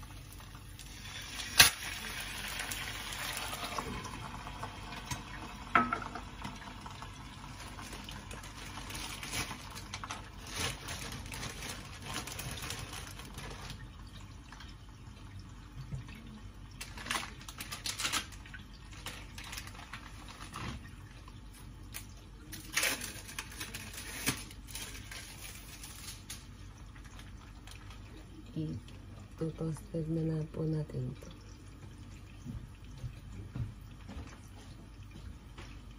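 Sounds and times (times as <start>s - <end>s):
food sizzling in a frying pan: 0.0s - 10.4s
plastic packaging rustling: 7.5s - 14.0s, 16.8s - 21.1s, 21.9s - 28.2s.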